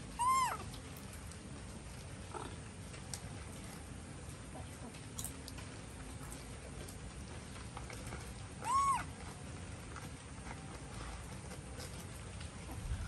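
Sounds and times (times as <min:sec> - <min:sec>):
faint monkey call: 0:00.0 - 0:00.8, 0:08.6 - 0:09.2
monkey squealing: 0:00.2 - 0:00.6, 0:08.6 - 0:09.1.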